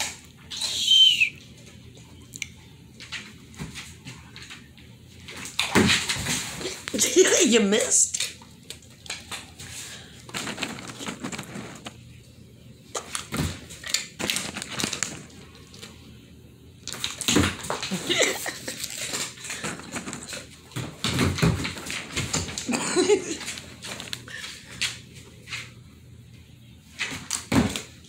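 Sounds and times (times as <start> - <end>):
dog paws clicking on wooden floor: 2.9 - 12.0, 16.8 - 25.8.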